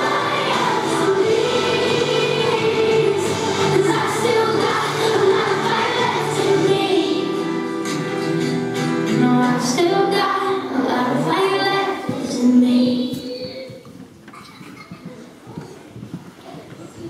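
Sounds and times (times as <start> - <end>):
children singing: 0.0 - 8.4, 9.0 - 13.1
pop backing track: 0.0 - 13.8
woman singing: 9.1 - 13.8.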